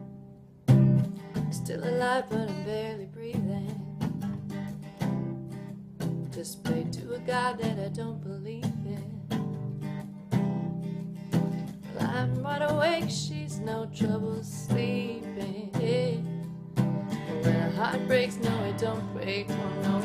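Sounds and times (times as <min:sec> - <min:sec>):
acoustic guitar strumming: 0:00.0 - 0:20.0
woman singing wordless notes: 0:01.5 - 0:03.9, 0:06.4 - 0:09.2, 0:11.9 - 0:16.4, 0:17.1 - 0:20.0.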